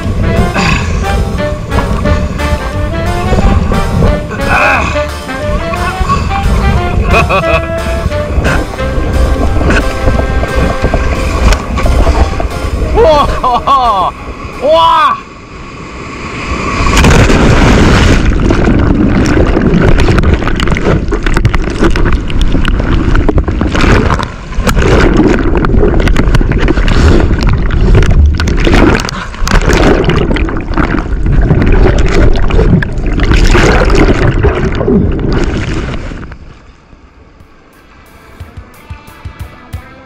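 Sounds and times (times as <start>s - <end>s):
churning white water: 0.0s - 36.5s.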